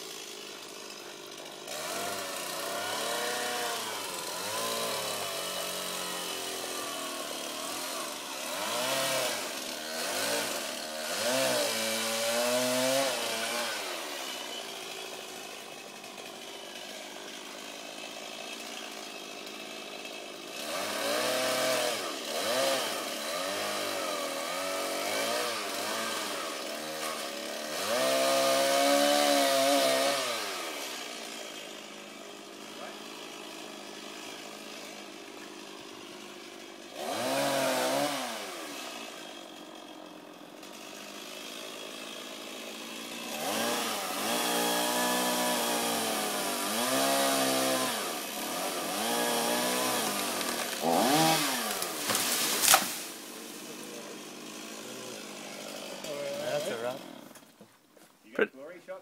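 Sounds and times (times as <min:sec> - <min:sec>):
chainsaw revving: 0:00.0 - 0:57.6.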